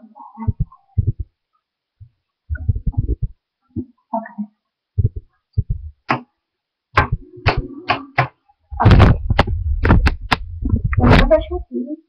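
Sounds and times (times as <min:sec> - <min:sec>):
microphone handling noise: 0:00.5 - 0:01.3, 0:02.5 - 0:03.4, 0:05.0 - 0:06.1, 0:08.7 - 0:11.6.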